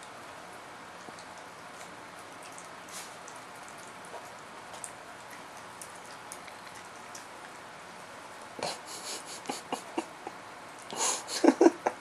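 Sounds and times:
faint clicks and ticks: 0:03.3 - 0:08.5
background hiss: 0:08.6 - 0:12.0.

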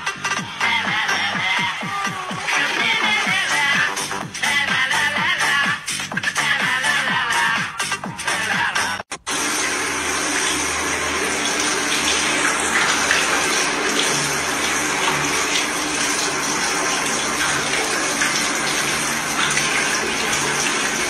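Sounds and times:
shower spray running: 0:09.2 - 0:21.0.

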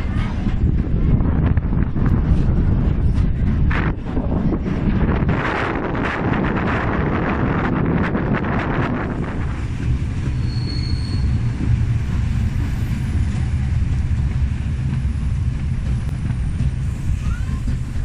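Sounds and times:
train wheels rumbling on rail: 0:00.0 - 0:18.0
wind buffeting microphone: 0:00.0 - 0:18.0
high wheel squeal: 0:10.2 - 0:11.6, 0:16.8 - 0:18.0.

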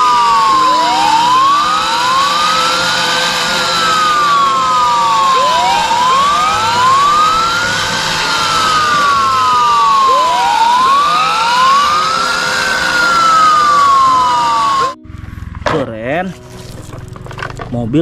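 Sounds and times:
toy fire truck sirens wailing: 0:00.0 - 0:15.0.

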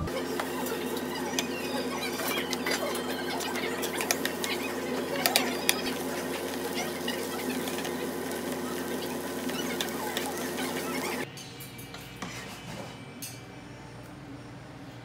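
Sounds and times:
gas burner hum: 0:00.0 - 0:11.3
metal spatula scraping a pan: 0:11.9 - 0:13.4.

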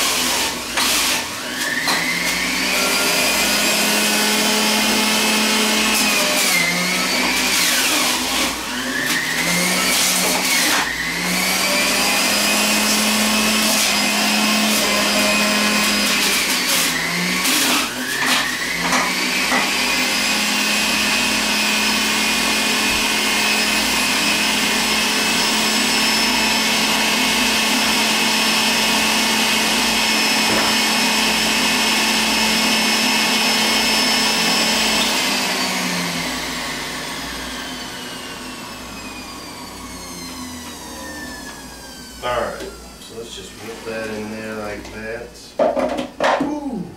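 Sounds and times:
juicer motor whine: 0:00.0 - 0:44.6
knocks in juicer: 0:45.6 - 0:46.5.

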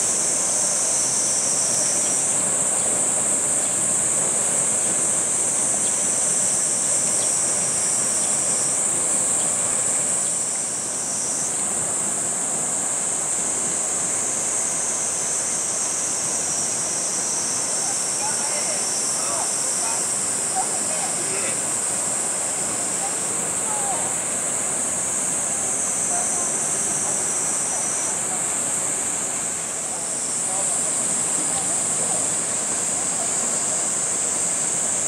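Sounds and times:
cicadas buzzing: 0:00.0 - 0:35.0.

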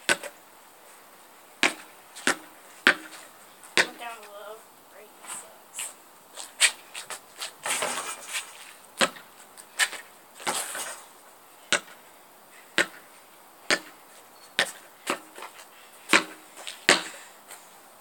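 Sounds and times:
basketball bouncing: 0:00.1 - 0:00.4, 0:01.6 - 0:04.4, 0:09.0 - 0:09.3, 0:11.7 - 0:12.0, 0:12.8 - 0:13.0, 0:13.6 - 0:14.0, 0:16.1 - 0:17.2.

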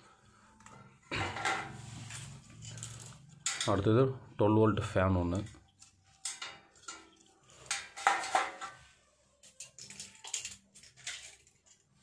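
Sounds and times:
plastic fan clattering on steel: 0:05.5 - 0:08.8
small parts clicking: 0:05.7 - 0:08.8, 0:09.4 - 0:12.0.

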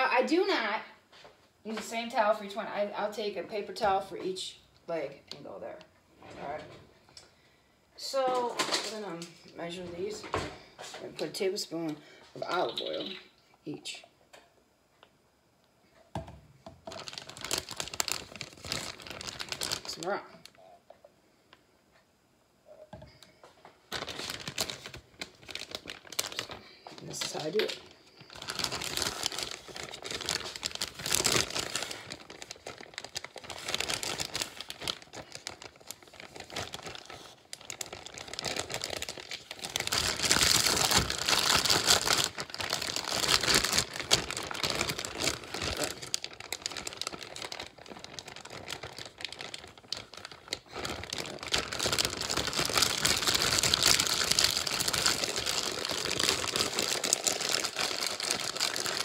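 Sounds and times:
plastic bag crinkling: 0:16.8 - 0:20.8, 0:23.4 - 0:59.0.

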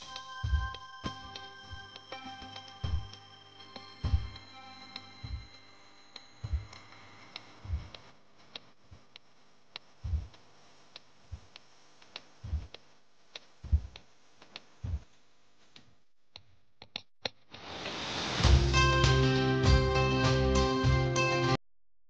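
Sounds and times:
soft low knocks: 0:04.0 - 0:04.4, 0:06.4 - 0:06.8, 0:07.6 - 0:08.0, 0:10.0 - 0:10.4, 0:12.4 - 0:12.8, 0:13.6 - 0:14.0.

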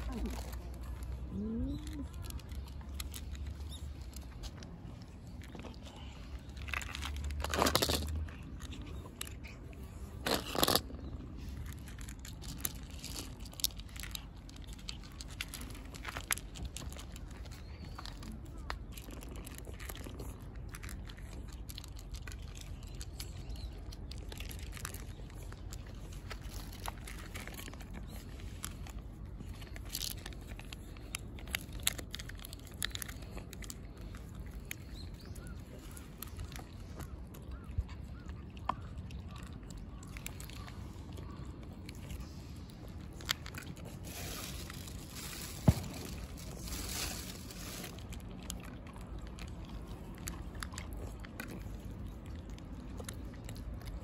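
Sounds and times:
cats crunching dry kibble: 0:00.0 - 0:54.0
rustling: 0:41.8 - 0:48.7.

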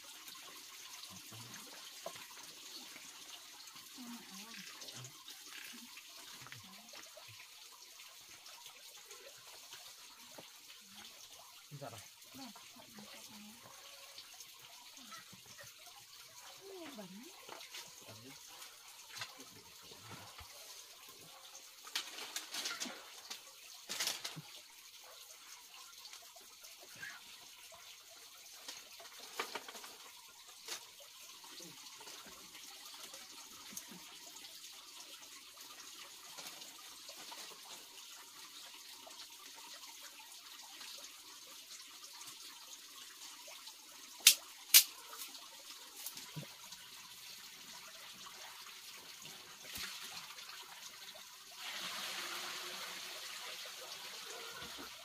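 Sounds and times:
trickle of running water: 0:00.0 - 0:55.0
sharp snaps: 0:44.2 - 0:44.9
bamboo sticks knocking and clicking: 0:44.2 - 0:45.0.

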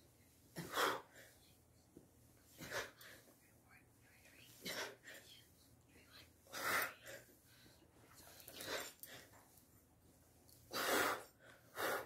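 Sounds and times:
woman breathing hard: 0:10.6 - 0:12.0.

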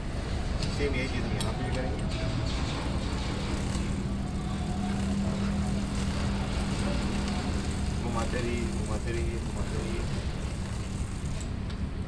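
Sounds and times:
engine running: 0:00.0 - 0:12.0.

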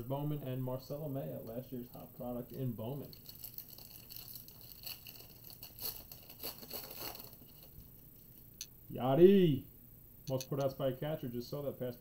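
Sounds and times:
sharp click: 0:10.3 - 0:10.7.

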